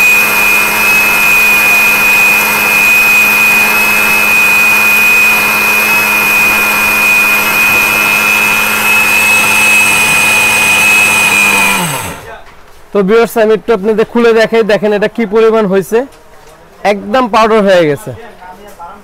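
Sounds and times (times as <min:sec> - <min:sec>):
mixer grinder motor grinding grain: 0:00.0 - 0:12.4.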